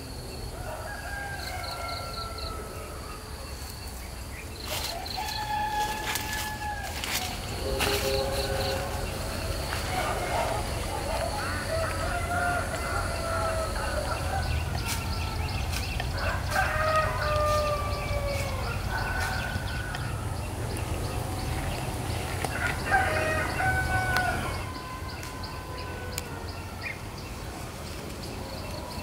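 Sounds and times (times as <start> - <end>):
roosters crowing: 0.0 - 29.0
low rumble: 18.7 - 23.1.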